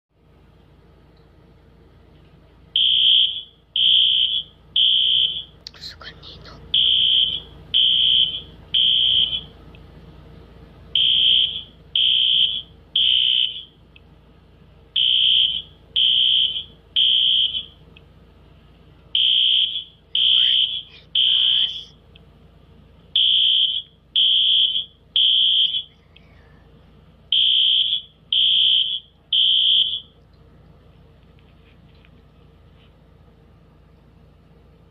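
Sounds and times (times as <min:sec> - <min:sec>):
smoke alarm beeping: 0:02.8 - 0:05.6, 0:06.8 - 0:09.6, 0:10.9 - 0:13.8, 0:15.0 - 0:17.8, 0:19.2 - 0:21.8, 0:23.2 - 0:25.9, 0:27.3 - 0:30.2.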